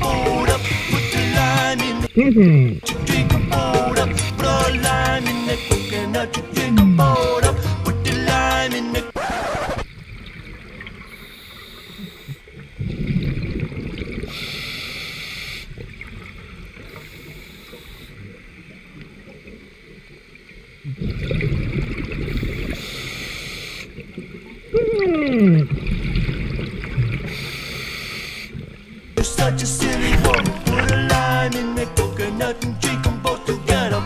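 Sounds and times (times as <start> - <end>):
exhaust bubbles rumbling: 0.0 - 8.6, 29.2 - 34.0
diver humming through regulator: 0.0 - 9.7, 29.2 - 34.0
regulator hissing inhalations: 0.6 - 1.7, 5.2 - 6.2, 11.2 - 12.4, 14.3 - 15.8, 16.9 - 18.2, 22.4 - 24.0, 27.3 - 28.6.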